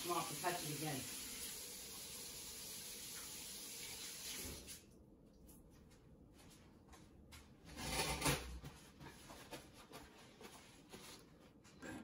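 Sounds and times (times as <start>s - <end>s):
kitchen tap running: 0.0s - 4.8s.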